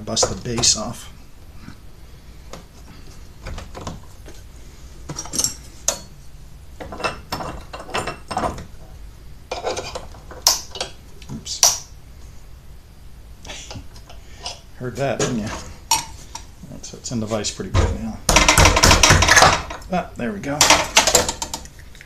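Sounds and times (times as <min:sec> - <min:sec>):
screwdriver scraping and knocking: 0:06.8 - 0:08.7, 0:09.5 - 0:11.0.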